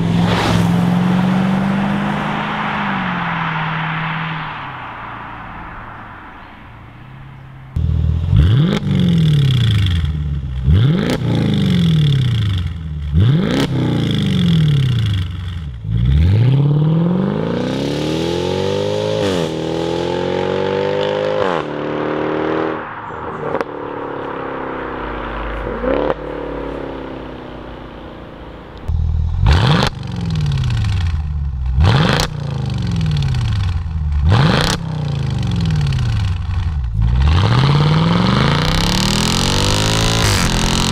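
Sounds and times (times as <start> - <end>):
car engine revving: 0.0 - 40.9.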